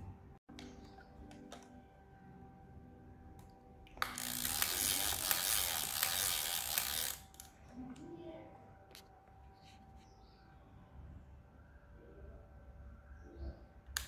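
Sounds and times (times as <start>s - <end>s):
camera mechanism ratcheting rattle: 4.0s - 7.5s.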